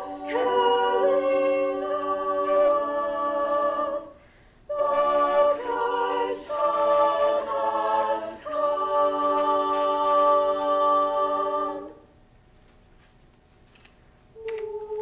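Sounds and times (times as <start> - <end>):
girls' choir singing a cappella: 0.0 - 12.1, 14.4 - 15.0.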